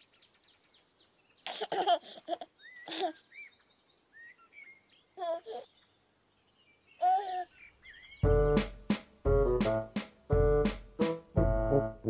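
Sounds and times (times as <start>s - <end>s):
birdsong chirps: 0.0s - 9.5s
baby giggling and babbling: 1.4s - 3.2s, 5.2s - 5.7s, 7.0s - 7.6s.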